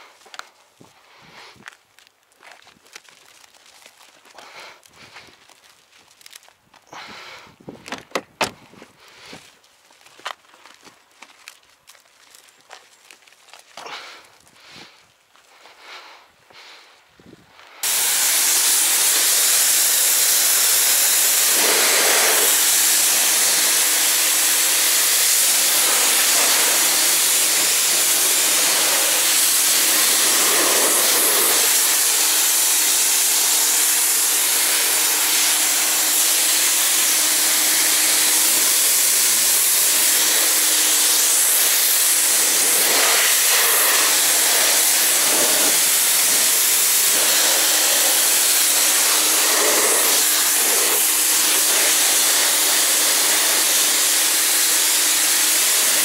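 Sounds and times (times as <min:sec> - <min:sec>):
jet hissing loudly: 0:17.8 - 0:56.0.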